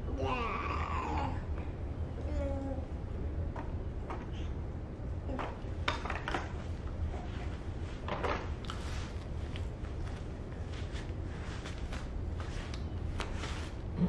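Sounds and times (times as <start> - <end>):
steady low hum: 0.0 - 14.0
plastic toys clicking and knocking: 5.3 - 6.6
rustling on foam mat: 6.6 - 14.0.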